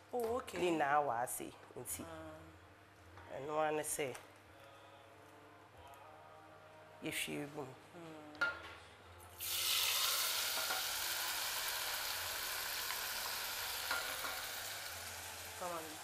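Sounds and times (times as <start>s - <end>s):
oil sizzling in a pan: 9.4s - 16.0s.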